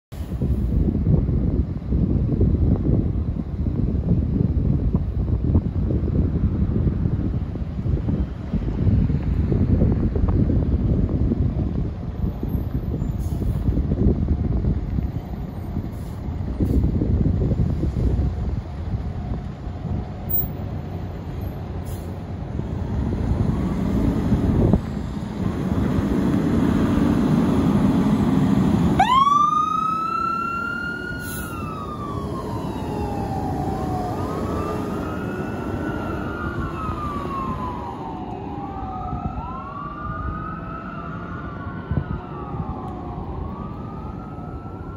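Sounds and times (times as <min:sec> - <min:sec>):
fire engine rumbling: 0:00.1 - 0:44.9
electronic siren wailing: 0:29.0 - 0:44.9.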